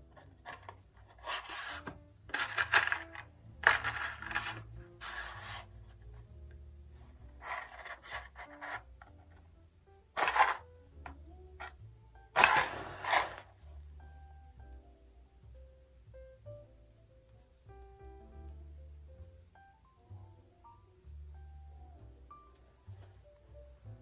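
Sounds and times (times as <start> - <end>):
faint background music: 0.0 - 24.0
match striking scrape: 1.2 - 2.6, 3.9 - 5.7, 12.4 - 13.6.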